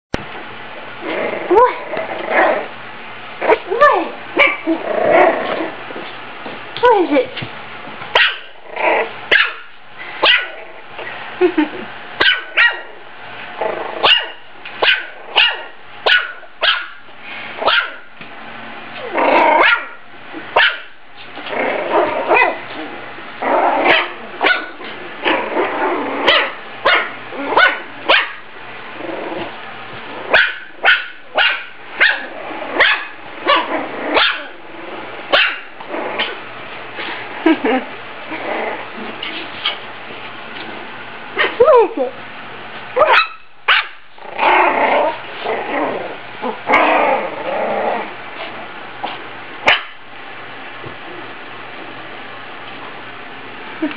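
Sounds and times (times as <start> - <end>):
puppy yapping: 3.5 - 5.6, 8.1 - 8.5, 9.3 - 10.6, 12.2 - 12.9, 14.0 - 17.0, 17.6 - 18.0, 19.0 - 20.0, 20.6 - 20.9, 23.8 - 28.4, 30.3 - 34.6, 35.3 - 36.4, 43.0 - 45.2, 49.6 - 50.0.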